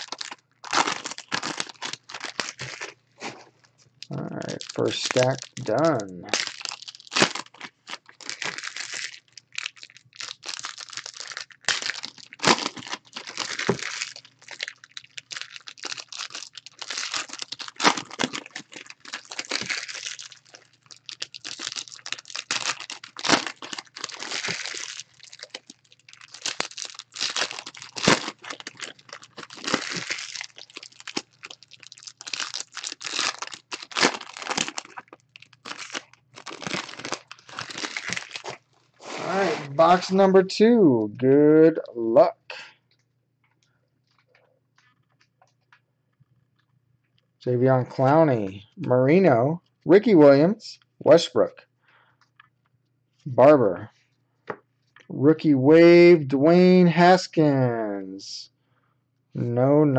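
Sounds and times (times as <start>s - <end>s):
plastic wrappers tearing and crinkling: 0.0s - 40.2s.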